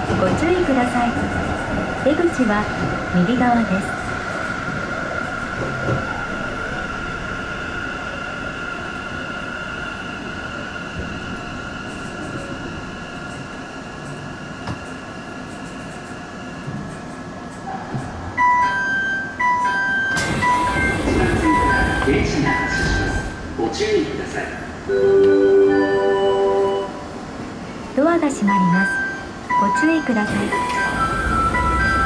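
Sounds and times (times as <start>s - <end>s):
train running rumble: 20.2s - 24.8s.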